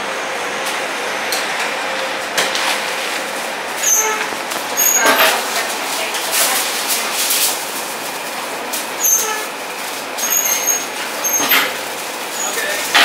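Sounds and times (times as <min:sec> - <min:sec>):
foil and plastic crinkling: 0:02.7 - 0:11.2.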